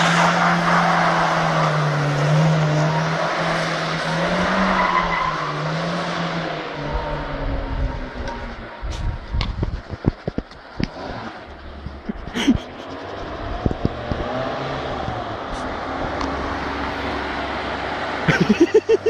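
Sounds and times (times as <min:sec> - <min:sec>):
car engine revving: 0:00.0 - 0:19.0
low rumbles: 0:06.3 - 0:19.0.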